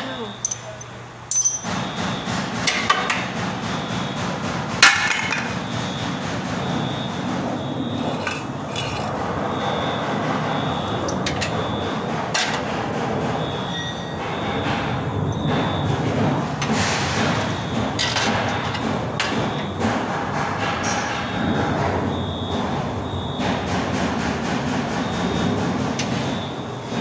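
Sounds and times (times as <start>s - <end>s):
steady background noise: 0.0s - 27.0s
tools clanking on metal: 0.4s - 1.8s, 4.8s - 5.7s, 8.0s - 9.1s, 16.6s - 19.6s.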